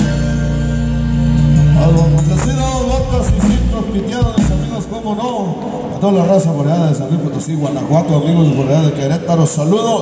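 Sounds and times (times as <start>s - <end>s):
accordion: 0.0s - 4.8s
electric bass: 0.0s - 5.2s
drums: 0.0s - 6.4s
bajo sexto guitar: 0.0s - 9.7s.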